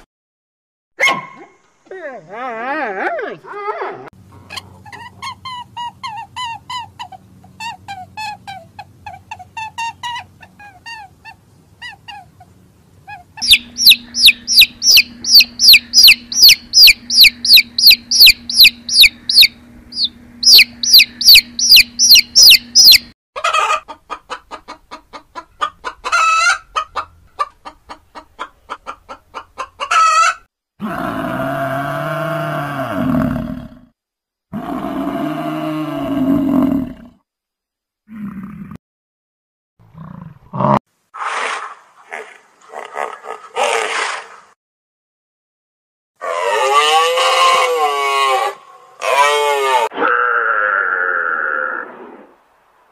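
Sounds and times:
animal calls: 13.1 - 23.7
chicks peeping: 13.4 - 30.3
long low animal calls: 46.2 - 52.2.

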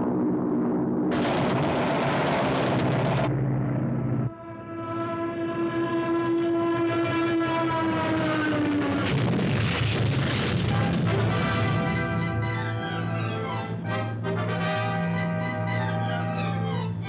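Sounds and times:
noisy clattering rush: 0.0 - 4.3, 8.6 - 12.3.

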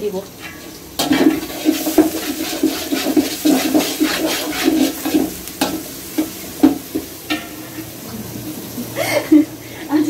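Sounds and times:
onions frying in oil sizzling: 0.0 - 10.0
metal spoon scraping a pot: 0.4 - 7.6.

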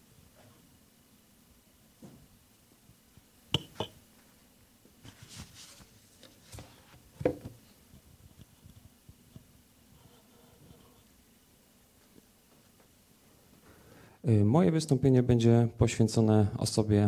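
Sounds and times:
rustling: 4.1 - 11.2.

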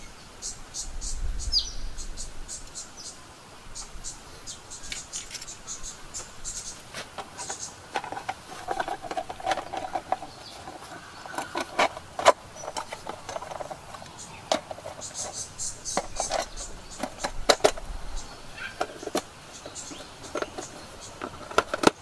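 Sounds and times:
camp gear clicking and knocking: 4.9 - 5.6, 6.2 - 22.0.

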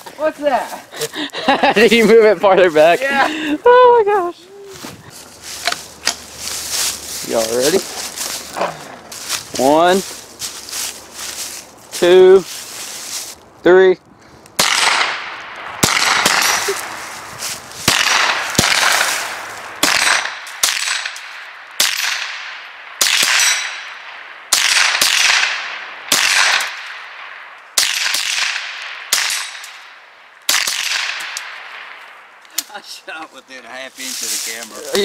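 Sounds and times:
rifle shots echoing: 14.6 - 17.2, 17.8 - 32.0.

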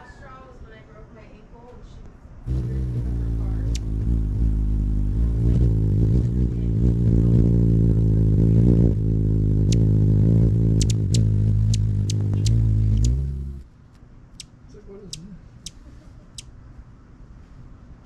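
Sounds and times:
low buzzy motor hum: 2.5 - 13.8
sharp high ticks: 3.7 - 4.0, 10.8 - 13.2.

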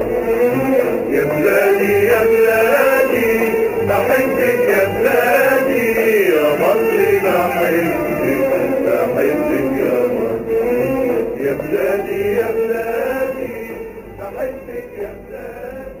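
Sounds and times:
men singing with music: 0.0 - 16.0.

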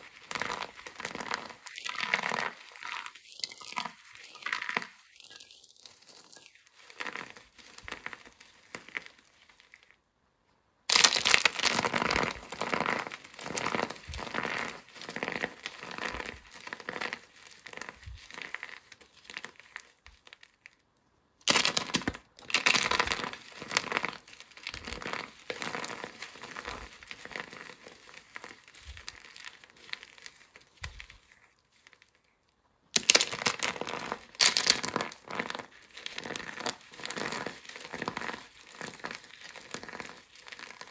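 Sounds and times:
soap pieces crunching in hands: 10.9 - 20.6, 33.0 - 40.9.

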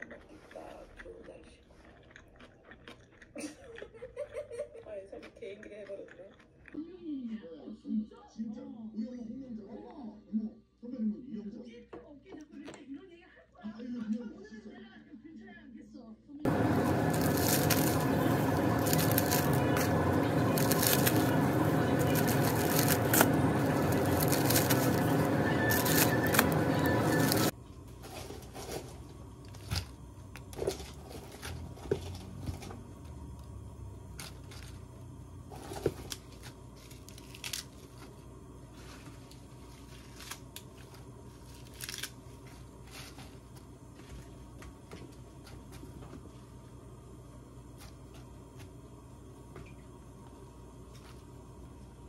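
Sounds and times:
plastic crinkling: 16.5 - 32.7, 35.5 - 44.4.

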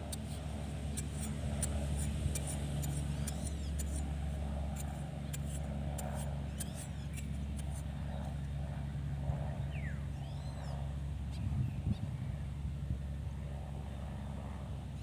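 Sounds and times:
motor humming: 0.0 - 8.9.

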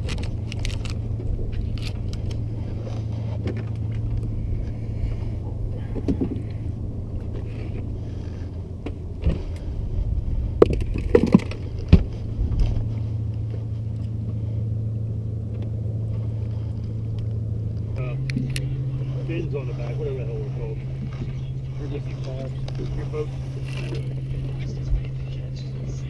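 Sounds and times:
boat engine idling: 0.0 - 26.0.

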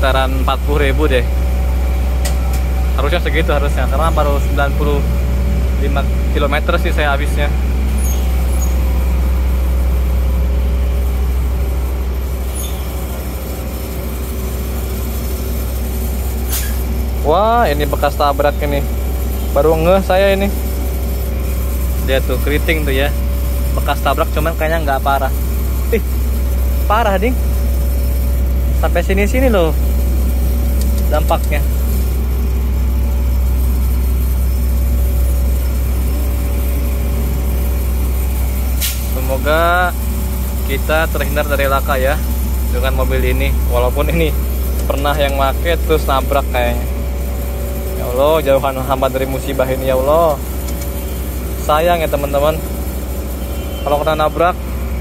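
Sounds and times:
faint constant hum: 0.0 - 55.0
gas pump mechanical drone: 0.0 - 55.0
hiss of gas flow: 11.0 - 26.8, 27.4 - 48.1.

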